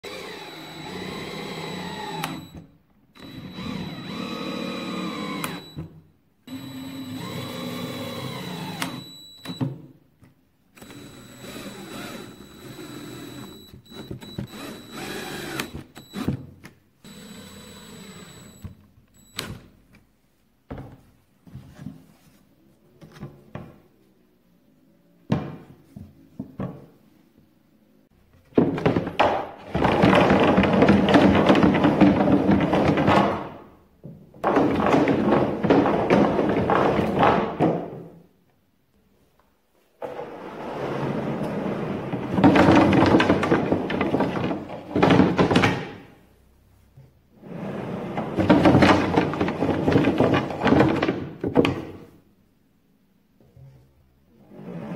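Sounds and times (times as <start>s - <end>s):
power drill driving screws: 0.0s - 2.6s, 3.2s - 5.8s, 6.5s - 9.6s, 10.8s - 16.4s, 17.0s - 19.5s
wooden parts knocking: 28.5s - 38.0s, 42.3s - 46.0s, 48.4s - 52.0s.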